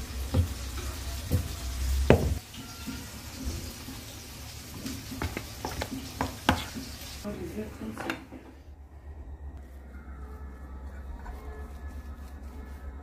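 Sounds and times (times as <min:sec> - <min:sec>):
spoon stirring thick mash: 0:04.7 - 0:07.2.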